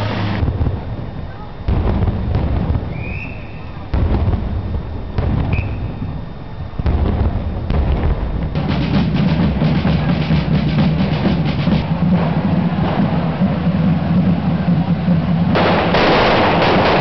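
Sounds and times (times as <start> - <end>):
fireworks banging: 0.0 - 17.0
drums playing fast beat: 6.8 - 16.2.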